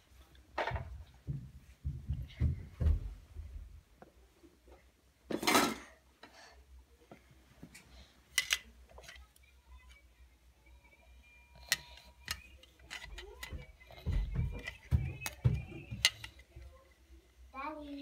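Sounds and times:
plastic toy dishes clacking: 11.6s - 16.5s.

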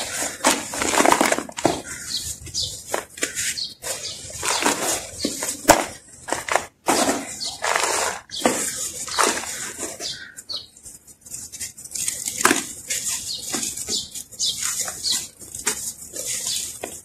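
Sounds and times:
sand clumps cracking: 0.0s - 10.3s.

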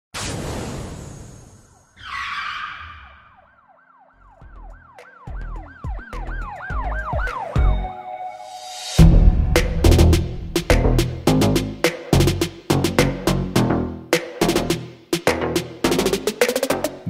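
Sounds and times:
fast up-and-down siren wail: 1.9s - 8.0s
deep bass thumps: 9.0s - 12.4s.

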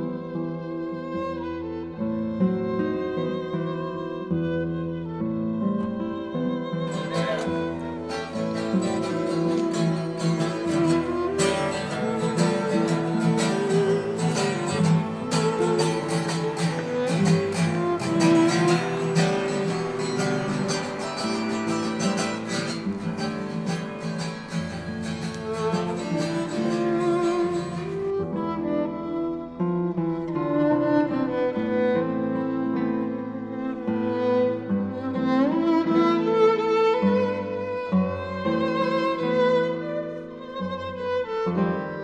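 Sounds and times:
acoustic guitar music: 0.0s - 42.0s
wavering sustained melody: 7.0s - 28.1s.

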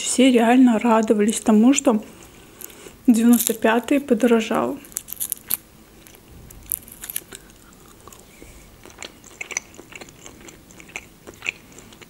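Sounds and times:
person chewing: 2.2s - 3.7s, 4.8s - 12.0s
foil wrapper crackling: 2.6s - 4.0s, 4.8s - 7.6s.

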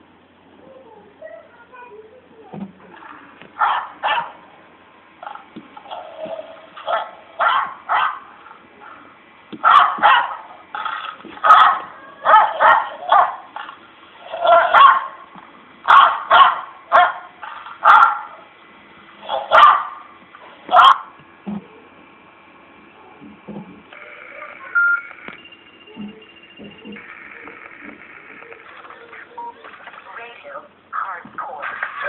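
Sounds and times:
dog barking: 3.6s - 4.4s, 5.9s - 9.0s, 9.6s - 10.6s, 11.4s - 13.5s, 14.3s - 15.2s, 15.9s - 18.4s, 19.2s - 20.0s, 20.7s - 21.1s.

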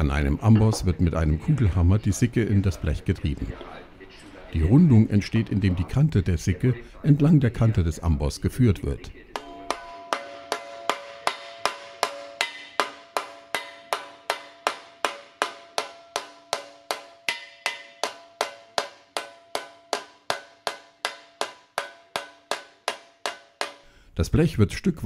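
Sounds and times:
hammer striking sheet metal: 9.4s - 23.9s.

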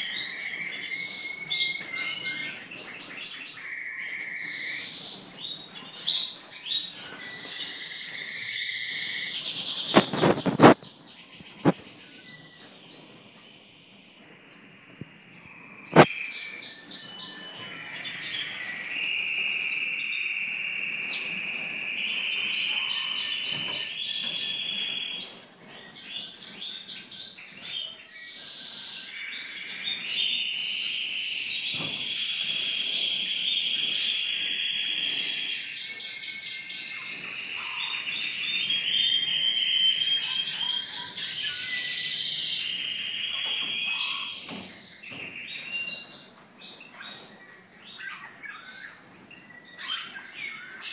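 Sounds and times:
finches twittering: 28.6s - 50.9s.

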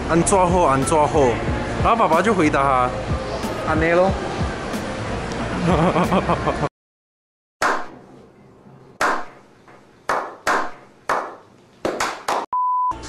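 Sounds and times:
music: 0.0s - 6.7s
slow hand claps with echo: 10.1s - 12.5s.

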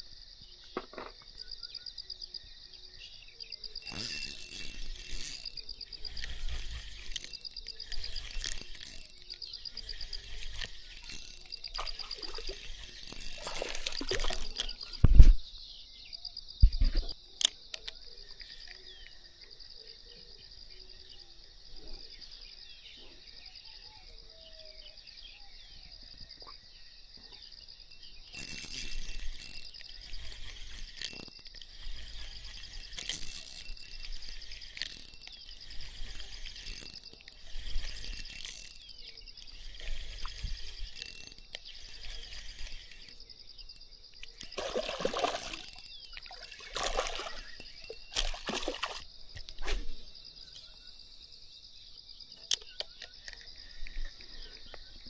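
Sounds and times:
insects chirring: 0.0s - 55.0s.

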